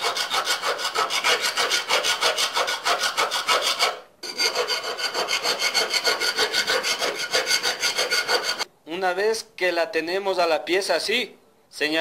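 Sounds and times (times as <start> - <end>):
hand file rasping on steel: 0.0 - 8.7.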